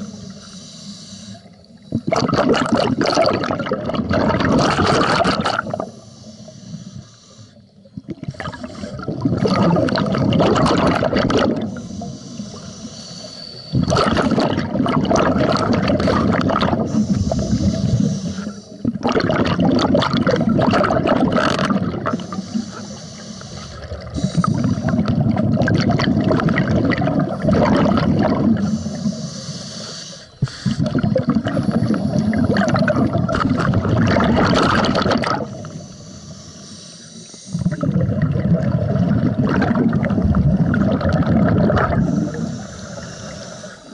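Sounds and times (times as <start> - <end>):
hissing breaths in: 0.0 - 2.1, 5.6 - 9.2, 11.6 - 14.4, 16.0 - 19.0, 22.1 - 25.1, 27.3 - 32.9, 35.4 - 37.9, 41.9 - 43.9
bubbling exhalations underwater: 1.9 - 5.9, 7.9 - 11.8, 13.7 - 18.1, 18.7 - 22.6, 23.7 - 29.2, 30.4 - 35.8, 37.6 - 42.6.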